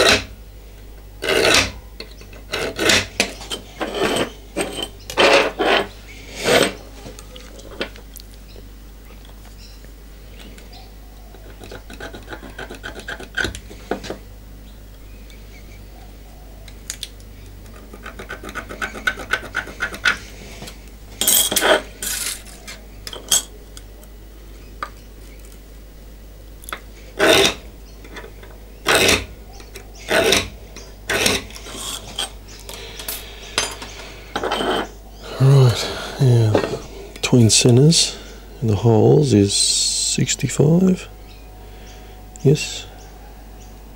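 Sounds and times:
scriber scratching metal plate: 0:01.2 - 0:06.8, 0:11.3 - 0:14.2, 0:17.7 - 0:22.8, 0:27.2 - 0:29.3, 0:30.0 - 0:32.4.

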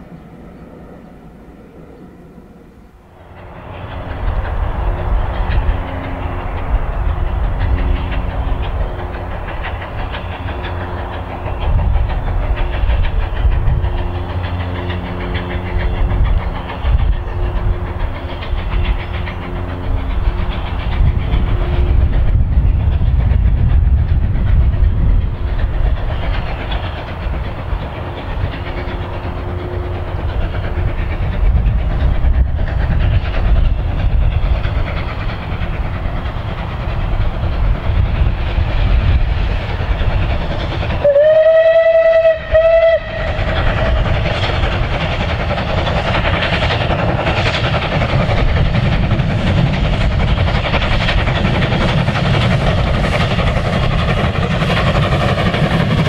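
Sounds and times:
steam locomotive exhaust rumble: 0:00.0 - 0:56.0
steam whistle blast: 0:41.0 - 0:43.5.

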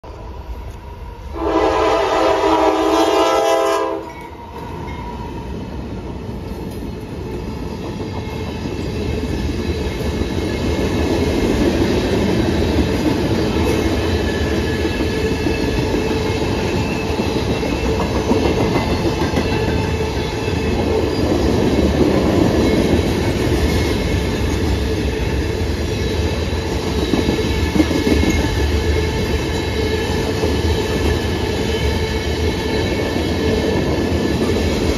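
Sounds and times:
train horn chord: 0:01.3 - 0:04.3
train wheels clattering on rails: 0:03.9 - 0:34.9.

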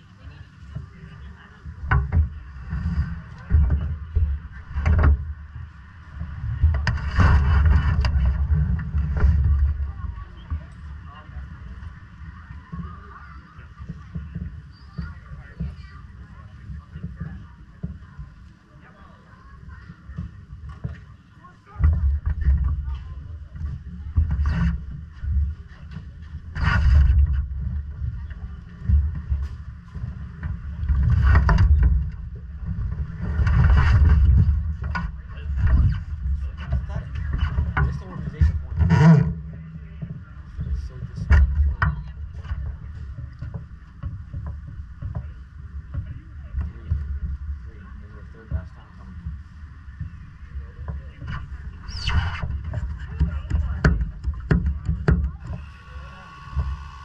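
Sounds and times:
small engine rumbling: 0:00.0 - 0:57.0
wind buffeting microphone: 0:00.8 - 0:18.6
hissing rush: 0:55.4 - 0:57.0.

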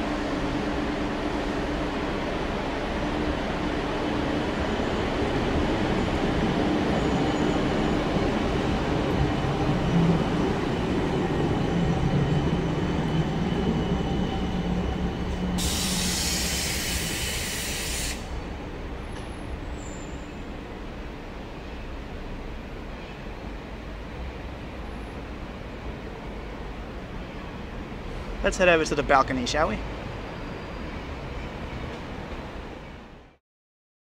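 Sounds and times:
tram wheels rumbling on rail: 0:00.0 - 0:33.3
high hiss: 0:15.6 - 0:18.4.

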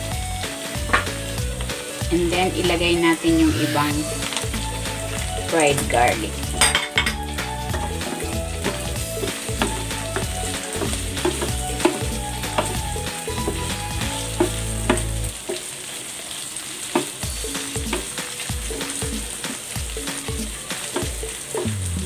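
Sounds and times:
chicken sizzling in a frying pan: 0:00.0 - 0:22.0
wooden spatula scraping a pan: 0:07.7 - 0:15.6.

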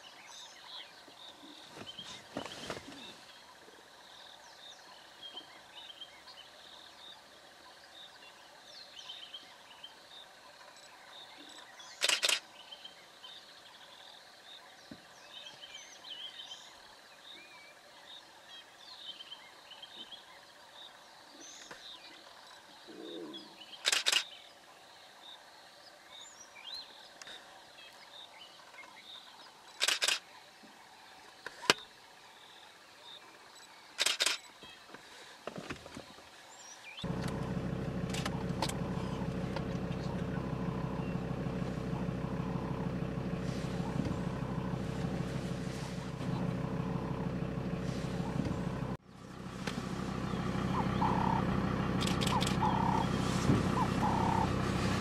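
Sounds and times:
camera shutter clicks: 0:12.0 - 0:12.4, 0:23.8 - 0:24.3, 0:29.8 - 0:30.2, 0:34.0 - 0:34.4
faint bird calls: 0:36.7 - 0:55.0
steady hum: 0:37.0 - 0:55.0.

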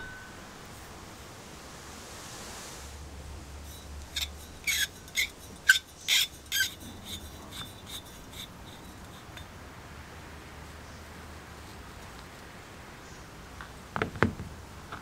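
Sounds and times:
squeaky metal threads scraping: 0:03.6 - 0:09.5.

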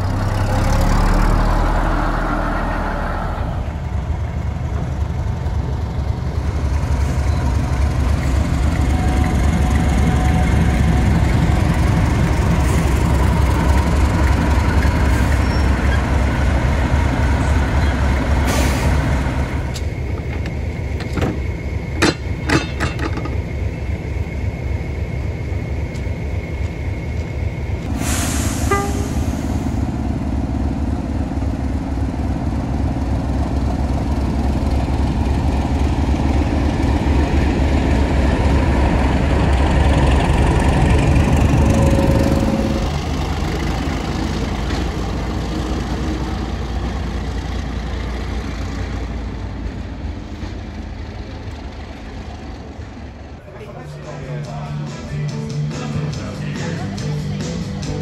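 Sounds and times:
bus engine pulling away: 0:00.0 - 0:58.0
locomotive engine idling: 0:03.6 - 0:27.9
sharp metallic clanks: 0:22.0 - 0:23.4.

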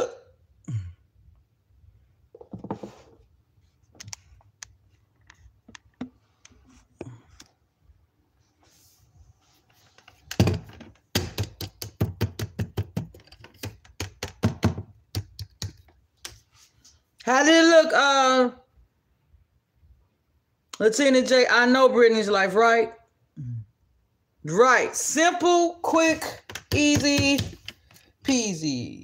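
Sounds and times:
fast sharp taps and knocks: 0:10.4 - 0:16.4, 0:26.4 - 0:28.0.

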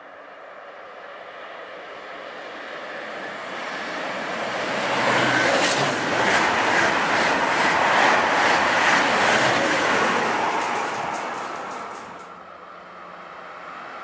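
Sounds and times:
high-speed train passing: 0:00.0 - 0:14.0
clicking of train wheels: 0:05.4 - 0:12.4.

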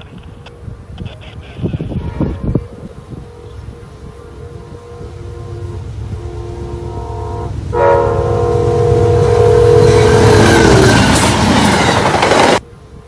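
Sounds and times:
train cars rumbling and clattering: 0:00.0 - 0:13.0
train air horn blasts: 0:01.9 - 0:11.3.

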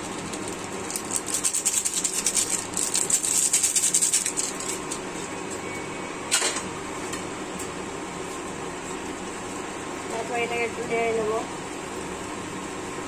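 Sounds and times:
spice sachet rustling: 0:00.0 - 0:05.1
induction cooktop hum: 0:00.0 - 0:13.0.

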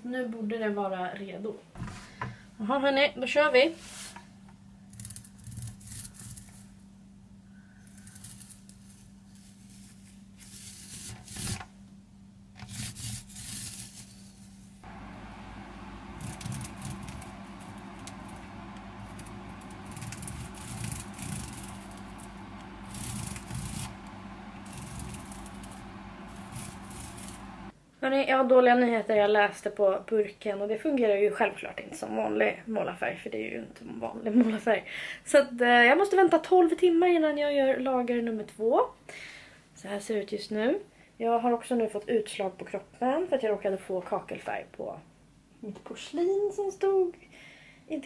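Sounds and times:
paint roller rubbing on tiles: 0:09.3 - 0:11.6, 0:12.6 - 0:14.7, 0:15.8 - 0:27.7
low steady hum: 0:14.8 - 0:27.8.

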